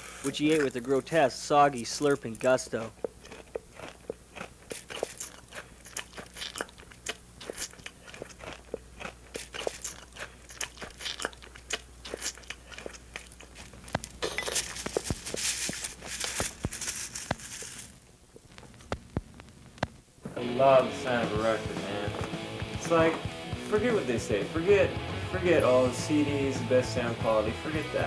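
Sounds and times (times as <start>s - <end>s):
wet chewing and slurping: 2.2s - 16.4s.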